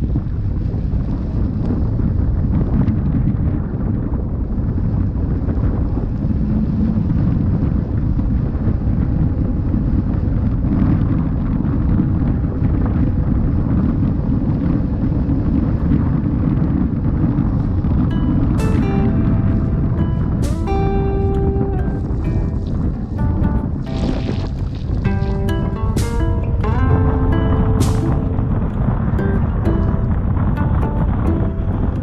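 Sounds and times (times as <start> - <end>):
wind buffeting microphone: 0.0 - 32.0.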